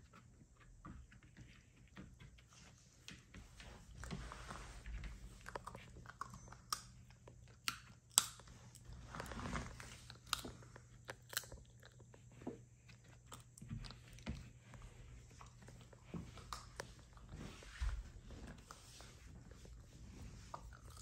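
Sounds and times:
puppy chewing: 5.1s - 21.0s.

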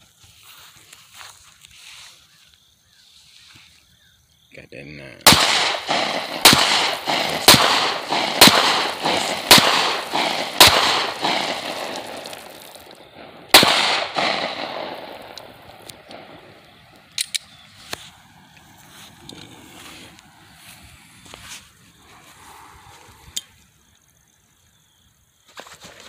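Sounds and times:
pistol shots with echo: 5.2s - 17.7s.

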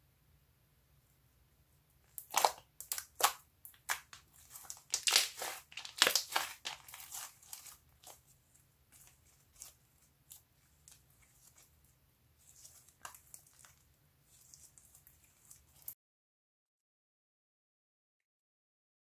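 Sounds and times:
slime crackling and squelching: 2.1s - 16.0s.

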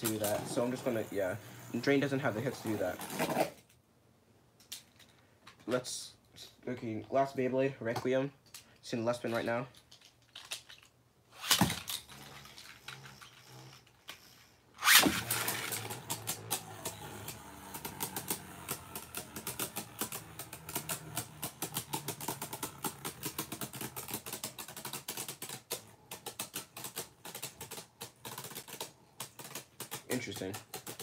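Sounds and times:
spinning top whirring: 0.0s - 3.6s, 11.4s - 31.0s
spinning tops clattering: 9.8s - 31.0s
top launched with a clack: 14.8s - 17.2s.

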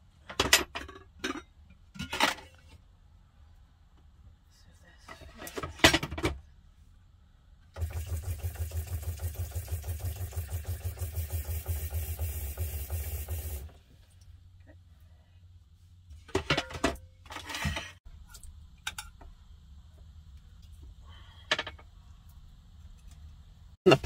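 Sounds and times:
water pump pulsing: 7.8s - 13.6s
faucet running water: 7.8s - 13.7s.

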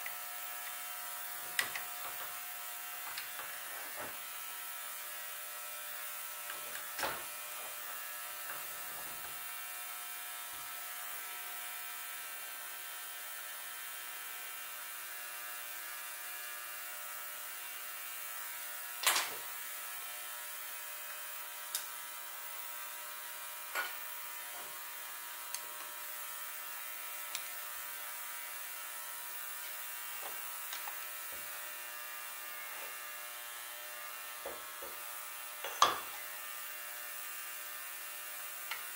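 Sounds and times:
electrical hum and buzz: 0.0s - 12.4s, 16.4s - 38.9s.

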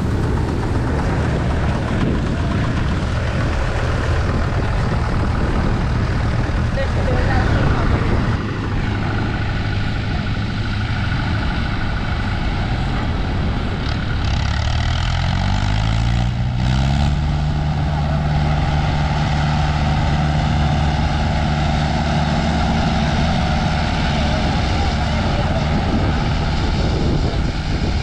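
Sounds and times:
tractor diesel engine under load: 0.0s - 28.0s.

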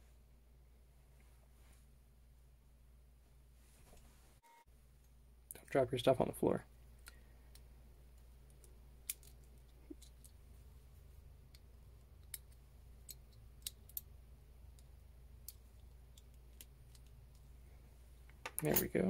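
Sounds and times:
low steady hum: 0.0s - 19.0s
small metal parts clicking: 8.5s - 10.4s, 12.2s - 14.1s.

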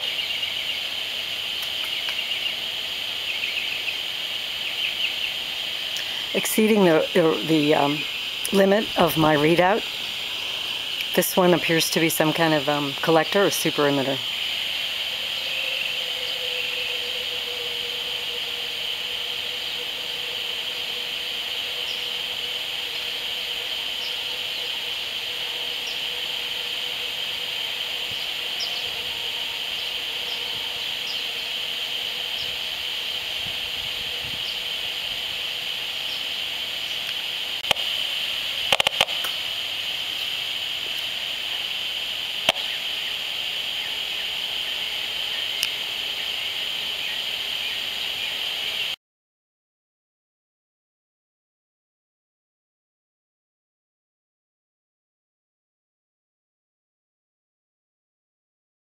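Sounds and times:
high-pitched hiss: 0.0s - 49.0s
sharp clicks: 38.7s - 39.4s.

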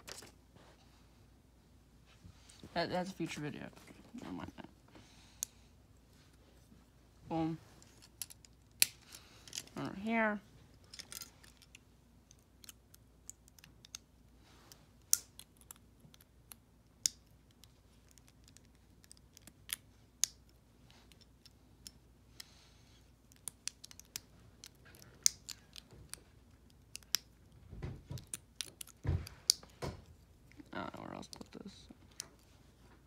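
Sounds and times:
plastic parts clicking and snapping: 10.9s - 14.1s, 23.3s - 30.2s.

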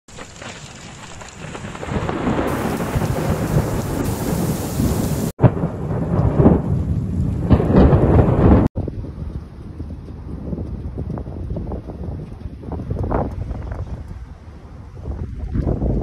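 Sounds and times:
heavy rain: 0.1s - 9.2s
thunder rumbling: 0.1s - 11.8s.

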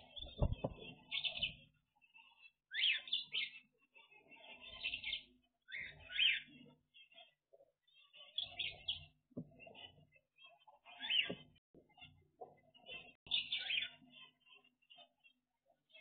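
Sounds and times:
finches chirping: 0.0s - 15.3s
upward-sweeping bird calls: 4.6s - 6.6s.

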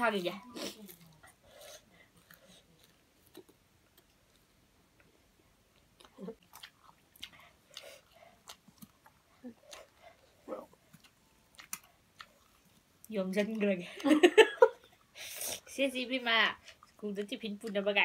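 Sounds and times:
close-up chewing: 0.3s - 5.1s, 5.7s - 13.7s, 16.6s - 17.8s.

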